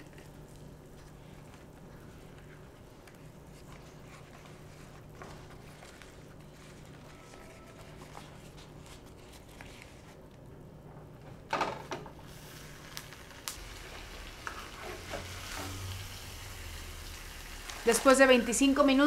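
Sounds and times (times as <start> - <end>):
banana leaf rustling: 0.0 - 10.2.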